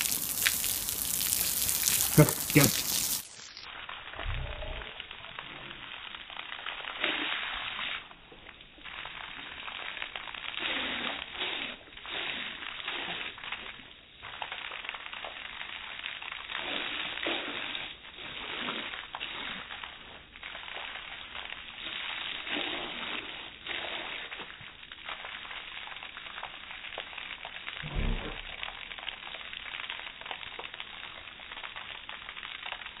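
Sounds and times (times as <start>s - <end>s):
slowed water splashing hiss: 0.0s - 33.0s
low thump: 27.8s - 28.6s.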